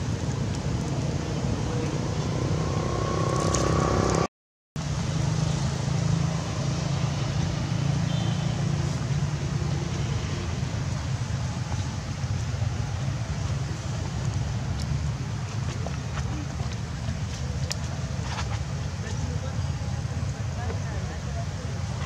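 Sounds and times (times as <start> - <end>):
low outdoor rumble: 0.0 - 7.9.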